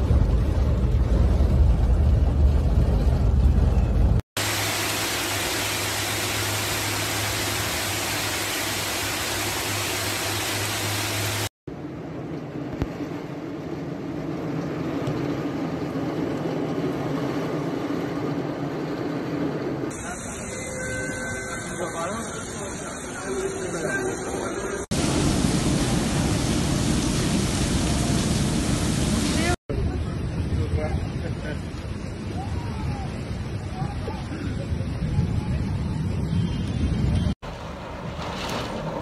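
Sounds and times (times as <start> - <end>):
deep rumble: 0.0 - 4.2
rushing floodwater: 4.4 - 11.5
torrential rain hiss: 4.4 - 11.5, 19.9 - 34.9.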